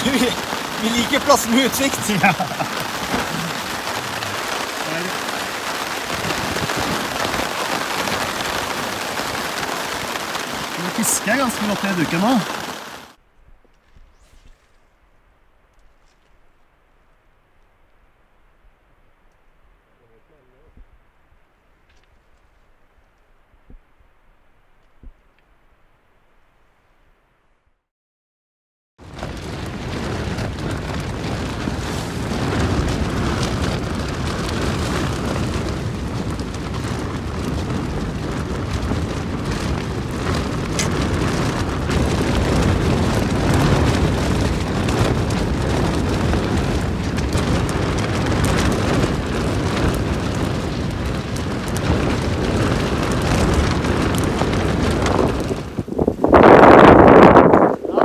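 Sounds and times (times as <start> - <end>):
wind gusts on microphone: 0.0 - 14.9, 29.0 - 58.0
rain crackling on tent fabric: 0.0 - 26.5, 29.0 - 58.0.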